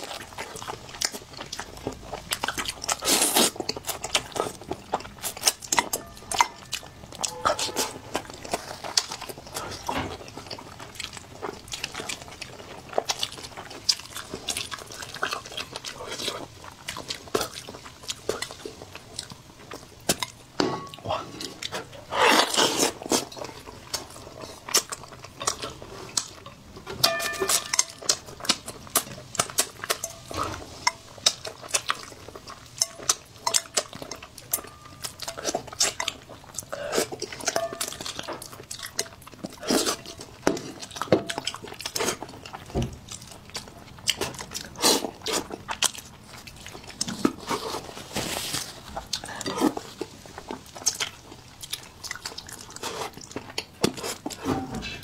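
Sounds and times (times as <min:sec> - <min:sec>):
wet chewing and sucking: 0:00.0 - 0:55.0
metal bowl ringing: 0:05.9 - 0:08.5, 0:27.0 - 0:28.1, 0:37.6 - 0:38.0.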